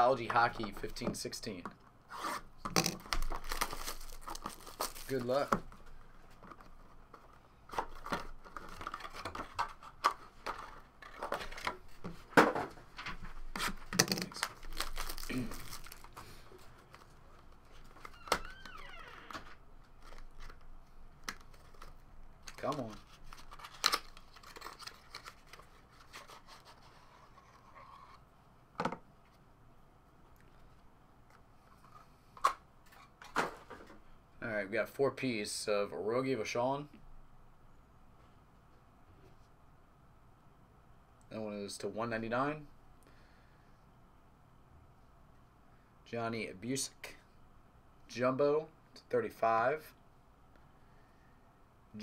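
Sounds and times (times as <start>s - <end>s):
cardboard pack rustling: 3.0s - 5.5s, 13.6s - 18.2s.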